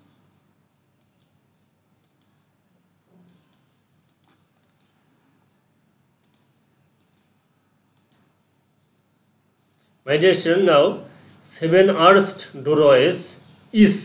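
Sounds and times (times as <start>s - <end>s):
computer mouse clicks: 1.0s - 1.4s, 2.0s - 2.4s, 3.1s - 5.0s, 6.2s - 8.3s.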